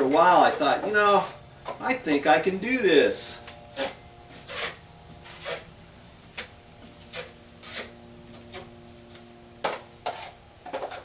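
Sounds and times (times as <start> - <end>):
drywall knife scraping: 3.7 - 5.7, 6.3 - 8.7, 9.7 - 11.0.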